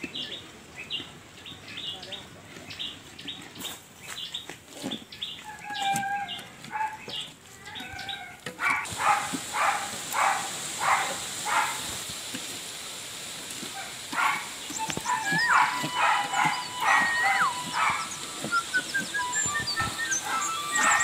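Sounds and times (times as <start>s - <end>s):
animal calls: 4.8s - 12.0s, 13.7s - 21.0s
steady hiss: 8.6s - 21.0s.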